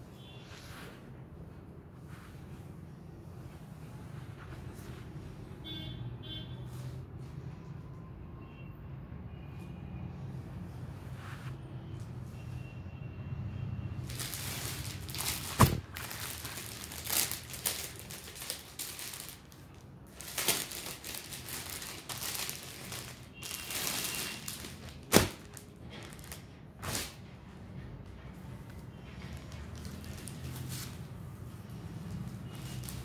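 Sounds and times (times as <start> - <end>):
plastic packaging crinkling: 14.0 - 27.2, 29.4 - 31.0.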